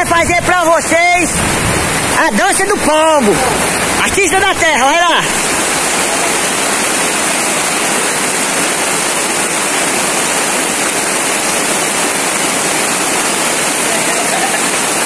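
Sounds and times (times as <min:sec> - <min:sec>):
rain on a canvas tent: 0:00.0 - 0:15.0.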